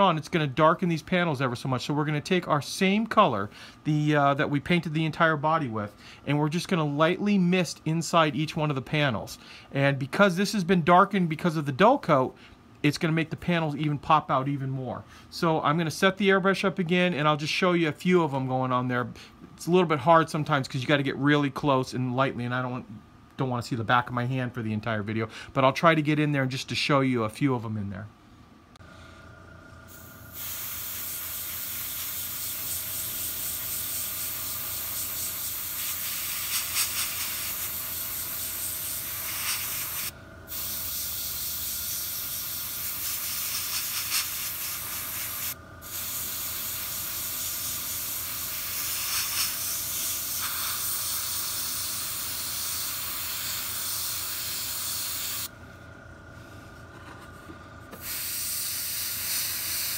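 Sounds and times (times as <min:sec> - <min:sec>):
airbrush spraying hiss: 0:29.9 - 0:55.5, 0:58.0 - 0:59.9.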